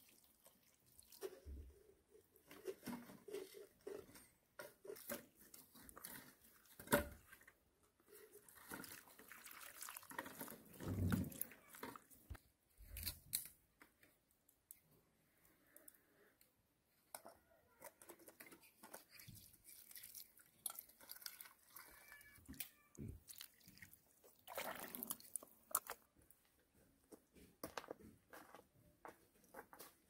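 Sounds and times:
water splashing: 0:08.5 - 0:11.9, 0:23.2 - 0:26.0.

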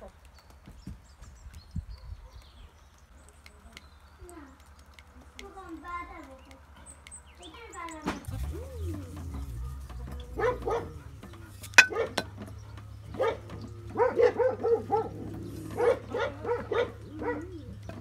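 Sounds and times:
dog barking: 0:02.0 - 0:02.8, 0:10.1 - 0:18.0.

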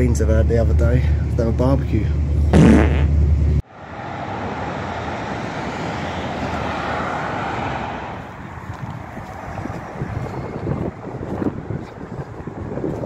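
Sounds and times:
wind noise: 0:08.0 - 0:13.0.

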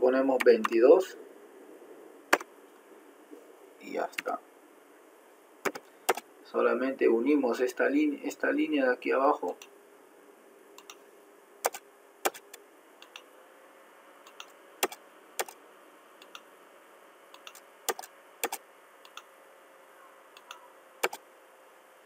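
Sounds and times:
faint steady hiss: 0:00.0 - 0:22.0
mouse and keyboard clicks: 0:00.4 - 0:00.8, 0:05.7 - 0:06.2, 0:10.8 - 0:11.0, 0:11.7 - 0:13.2, 0:14.3 - 0:15.6, 0:16.2 - 0:16.4, 0:17.4 - 0:19.3, 0:20.4 - 0:21.2.

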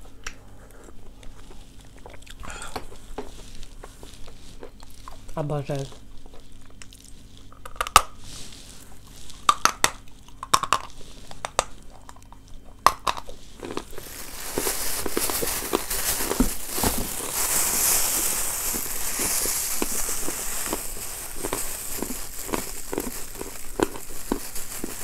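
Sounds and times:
plastic bag crinkling: 0:13.0 - 0:25.0.

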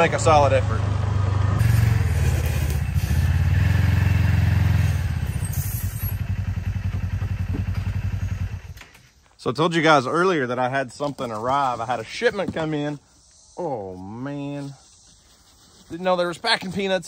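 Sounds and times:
utility vehicle engine idling: 0:00.0 - 0:09.2.

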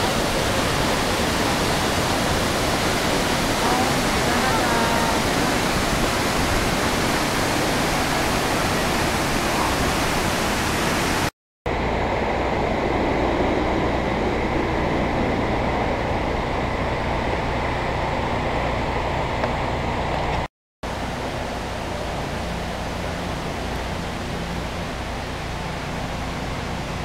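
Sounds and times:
waterfall rushing: 0:00.0 - 0:11.3, 0:20.9 - 0:27.0.

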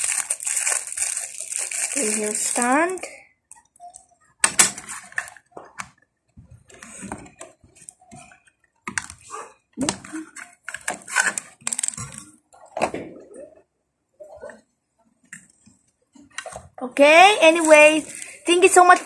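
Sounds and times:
small plastic parts clicking: 0:09.9 - 0:12.3.

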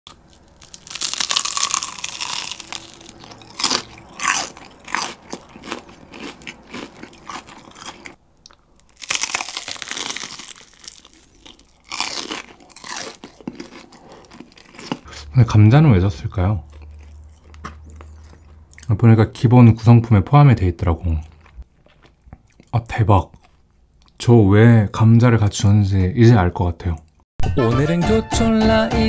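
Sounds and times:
chewing: 0:00.1 - 0:15.3, 0:16.6 - 0:18.9, 0:21.1 - 0:24.2
crunching fried chicken: 0:00.1 - 0:15.4, 0:16.0 - 0:19.0.

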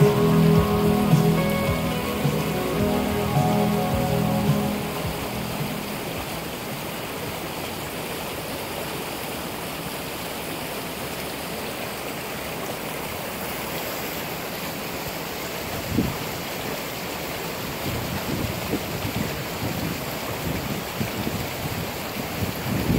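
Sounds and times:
creek rushing over riffles: 0:00.0 - 0:08.7.

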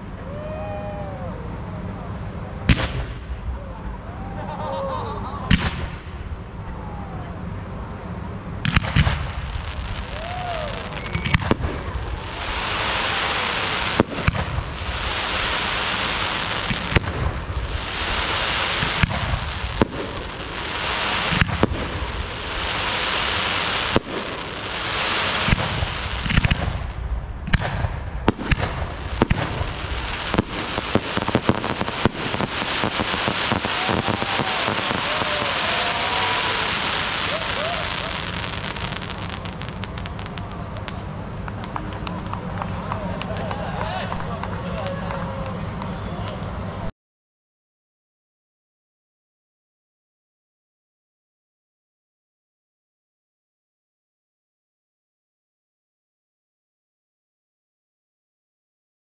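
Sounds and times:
hissing crackle of fireworks: 0:00.0 - 0:46.9
small firework bursts: 0:00.1 - 0:06.4, 0:08.6 - 0:46.8
firework launch thumps: 0:02.7 - 0:03.3, 0:08.6 - 0:09.5, 0:18.9 - 0:20.2, 0:25.4 - 0:36.0.

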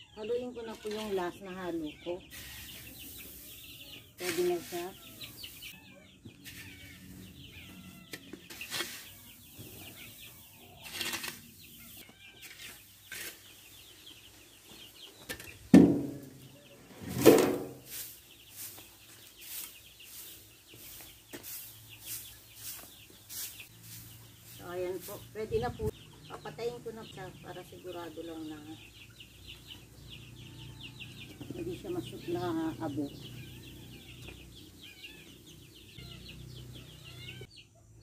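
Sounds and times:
broom brushing: 0:00.6 - 0:13.9, 0:15.9 - 0:25.9
shovel scraping rice hulls: 0:02.3 - 0:05.6, 0:06.4 - 0:07.3, 0:08.1 - 0:13.7, 0:17.0 - 0:25.2
loud thumps: 0:15.7 - 0:16.4.

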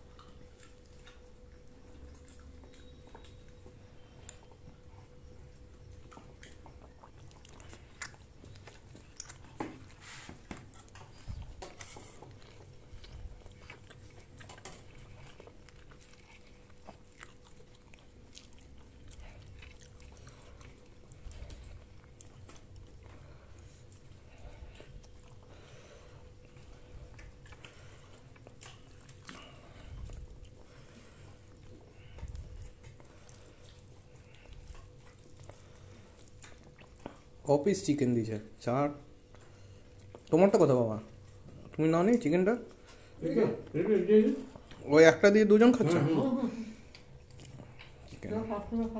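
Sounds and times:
faint steady hum: 0:00.0 - 0:48.9
people chewing: 0:00.0 - 0:48.9.

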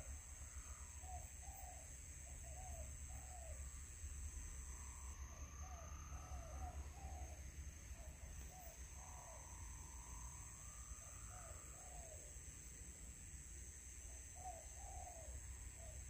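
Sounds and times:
dove cooing: 0:05.6 - 0:07.4, 0:14.4 - 0:16.0.

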